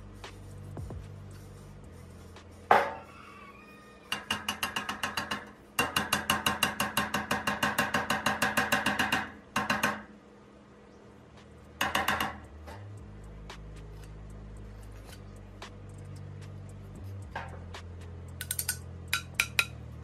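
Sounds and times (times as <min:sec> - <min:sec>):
metal rod tapping steel barrel: 0:04.1 - 0:10.0, 0:18.4 - 0:19.8.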